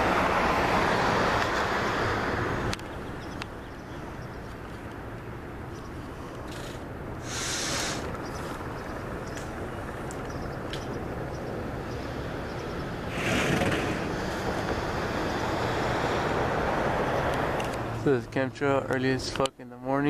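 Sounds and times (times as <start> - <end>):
distant helicopter rumbling: 0.0 - 18.1.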